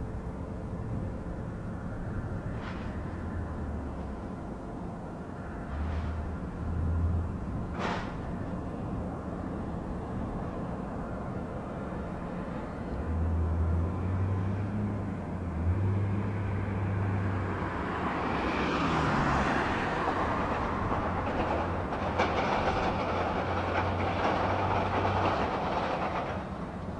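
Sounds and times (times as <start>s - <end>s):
ground vehicle engines running: 0.0s - 26.9s
truck approaching with rushing noise: 0.0s - 26.9s
rattling and clatter: 20.5s - 26.9s.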